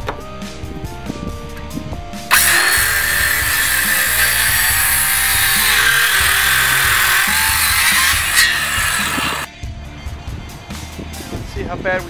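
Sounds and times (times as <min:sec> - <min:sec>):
circular saw cutting wood: 0:02.3 - 0:09.5.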